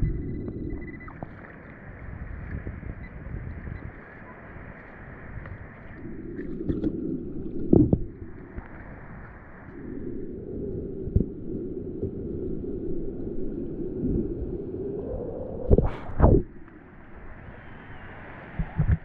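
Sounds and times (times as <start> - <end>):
sea water sloshing and lapping: 0.0 - 9.8.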